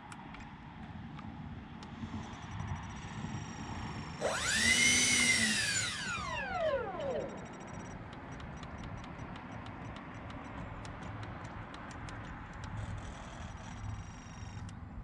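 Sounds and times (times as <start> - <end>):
electric fans whining down: 1.9 - 8.6
light ticking: 7.0 - 12.9.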